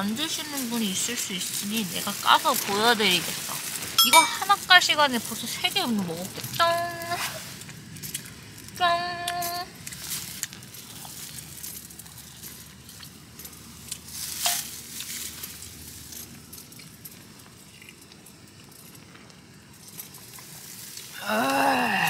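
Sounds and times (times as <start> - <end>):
plastic glove rustling: 0.0 - 8.7, 9.4 - 16.5
sharp crackle: 0.0 - 22.0.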